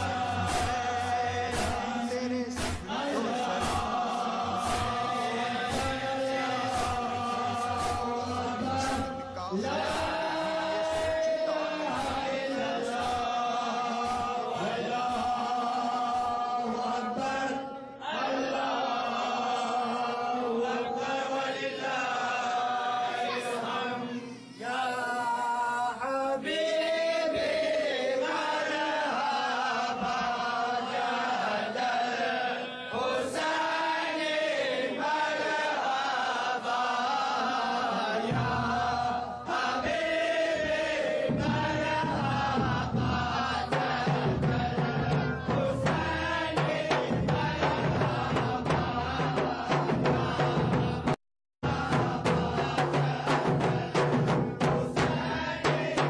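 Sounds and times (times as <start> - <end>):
men chanting together: 0.0 - 56.0
sharp strikes: 0.4 - 4.0.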